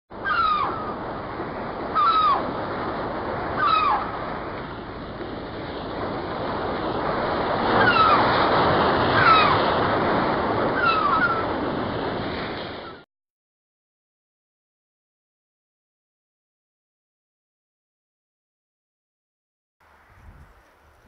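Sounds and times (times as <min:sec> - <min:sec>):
surf washing: 0:00.1 - 0:13.0.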